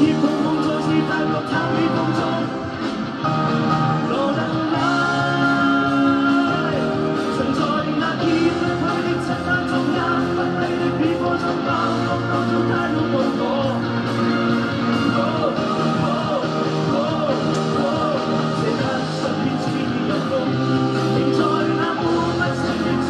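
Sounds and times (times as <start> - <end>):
man singing into microphone: 0.0 - 2.8, 3.9 - 23.0
band playing: 0.0 - 23.0.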